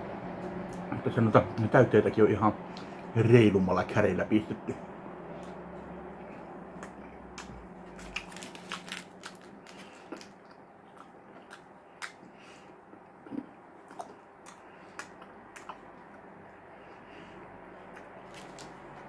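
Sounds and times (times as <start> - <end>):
man chewing with mouth smacks: 6.2 - 19.0.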